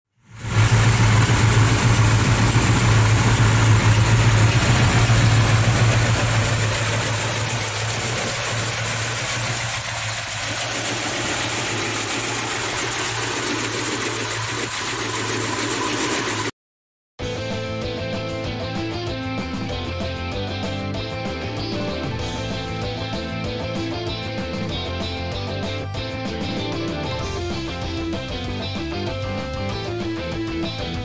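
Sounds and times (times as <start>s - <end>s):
car engine idling: 0.2s - 16.5s.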